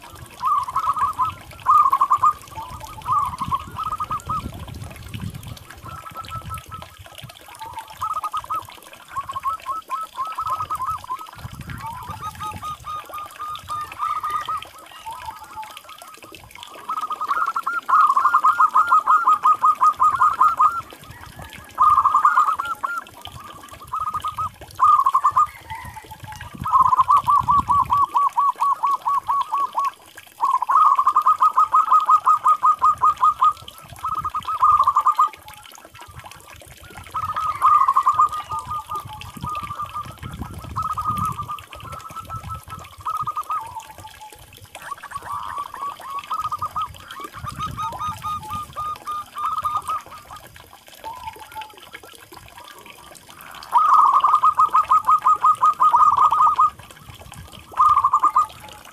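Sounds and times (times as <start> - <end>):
dove cooing: 0.0 - 4.7, 5.5 - 51.9, 52.6 - 56.8, 57.4 - 58.9.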